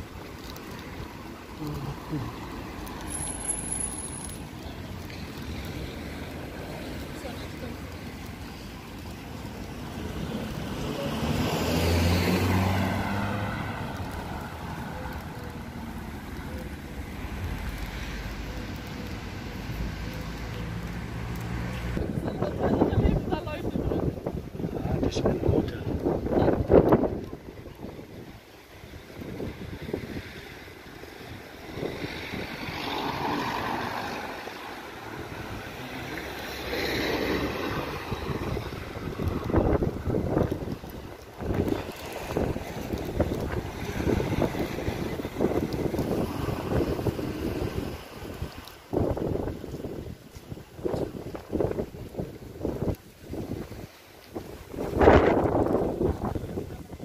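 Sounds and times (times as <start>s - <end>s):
street traffic noise: 0.0s - 57.0s
car passing by: 9.0s - 24.1s, 28.0s - 49.9s
wind buffeting microphone: 20.8s - 33.8s, 37.2s - 57.0s.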